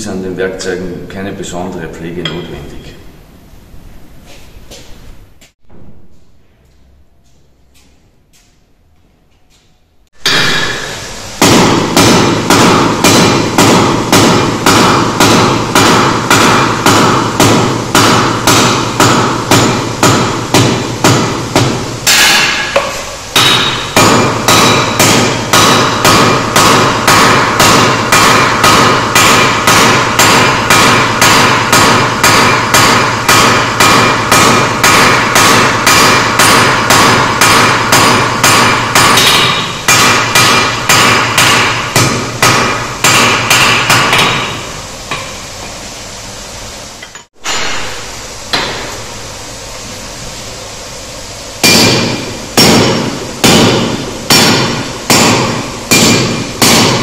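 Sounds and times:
hammer ringing on anvil: 2.2 - 3.0, 10.2 - 21.2, 22.1 - 45.3, 51.6 - 57.0.

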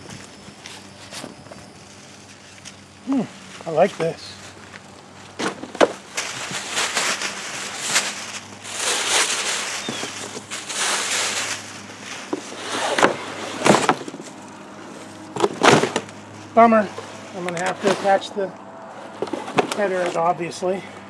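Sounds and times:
sharp handling crackles: 0.0 - 20.3
fabric rustling: 4.4 - 14.4
tissue paper crinkling: 6.0 - 13.6.

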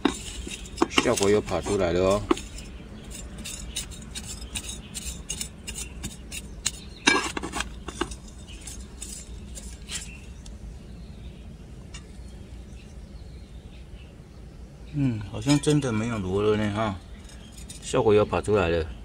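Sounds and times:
hand shovel scraping soil: 0.0 - 10.4.

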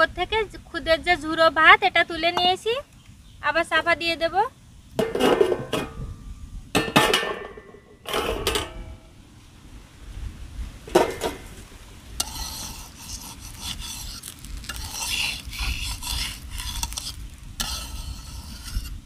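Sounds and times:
light sizzle: 0.0 - 19.0
ringing metal clank: 6.8 - 9.1
metal spatula scraping pan: 12.2 - 19.0.

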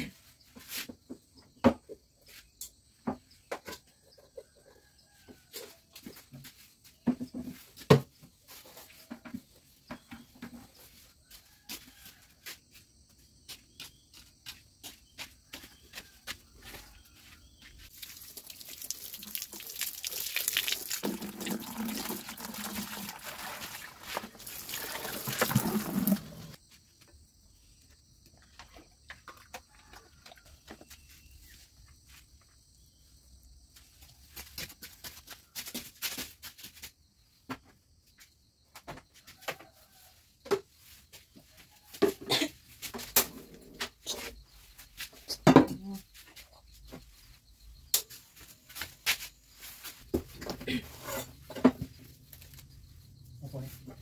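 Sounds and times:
water from hose into bucket: 17.9 - 26.6.

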